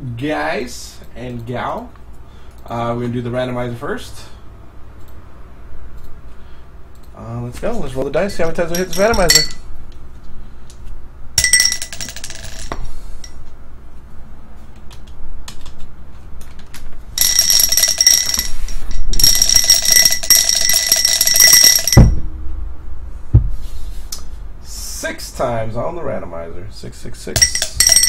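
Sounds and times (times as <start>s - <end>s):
glass thumping down: 20.1s - 22.3s.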